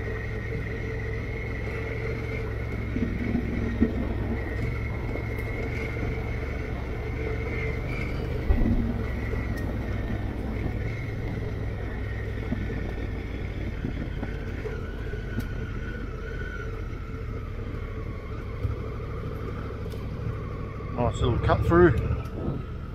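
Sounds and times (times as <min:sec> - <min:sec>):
motorcycle engine running: 0:00.0 - 0:22.9
wind noise on microphone: 0:01.2 - 0:17.4, 0:22.0 - 0:22.9.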